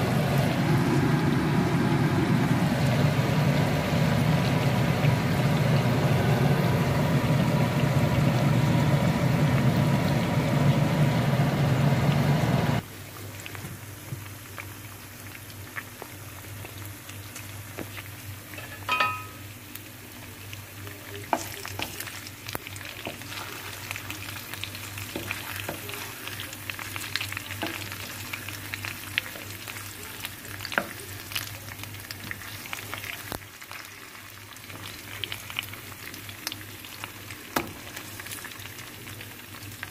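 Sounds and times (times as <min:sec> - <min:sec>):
steak sizzling in pan: 0:14.0 - 0:39.9.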